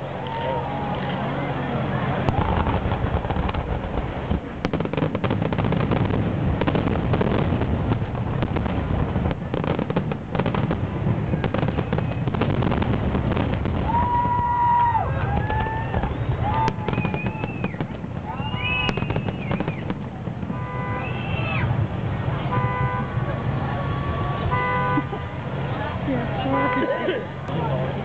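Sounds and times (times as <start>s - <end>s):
firework bangs and crackles: 0.0s - 28.0s
firework whistling: 2.3s - 21.9s.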